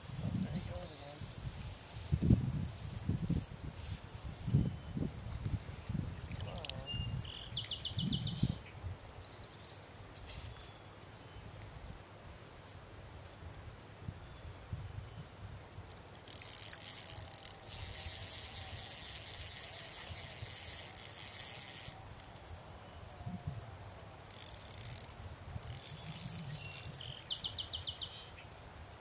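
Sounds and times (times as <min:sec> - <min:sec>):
fishing reel clicker ratcheting: 0:15.9 - 0:22.4, 0:24.3 - 0:27.3.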